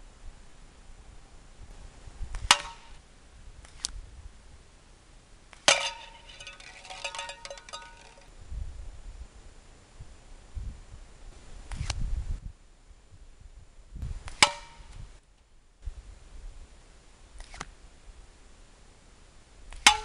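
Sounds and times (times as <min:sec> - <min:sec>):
rapid metallic rattling: 0:05.7 - 0:08.3
slingshot shots clanging on cans: 0:05.7 - 0:08.3.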